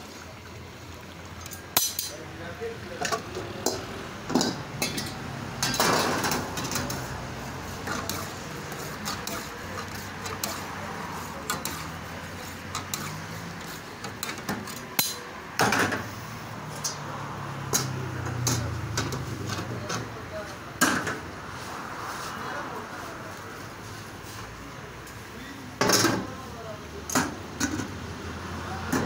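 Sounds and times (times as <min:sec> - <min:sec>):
tongs and ladle scraping a wok: 0:04.8 - 0:15.3.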